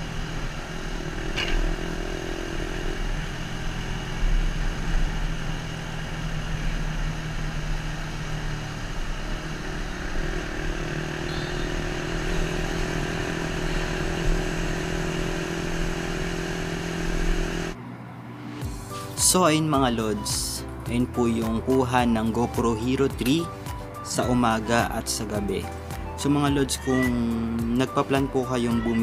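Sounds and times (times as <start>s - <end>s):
motorcycle engine running: 0.0s - 17.8s
wind and road noise: 0.0s - 18.9s.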